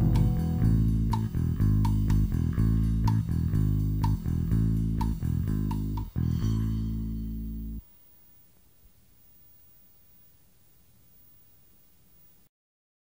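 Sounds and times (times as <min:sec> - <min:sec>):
drum hits: 0:00.0 - 0:02.5
rock band playing: 0:00.0 - 0:02.6
guitar chord ringing out: 0:00.0 - 0:03.0.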